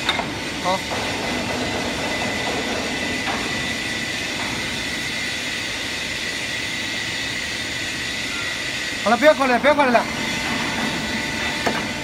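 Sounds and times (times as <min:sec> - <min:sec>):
pipe-bending machine humming: 0:00.0 - 0:12.0.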